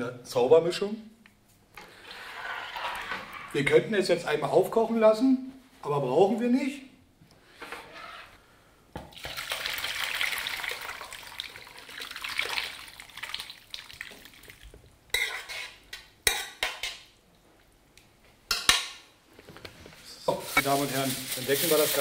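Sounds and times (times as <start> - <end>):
spoon and pot scraping metal: 2.0 - 3.8, 15.1 - 17.0
liquid splashing into metal tray: 9.1 - 14.6.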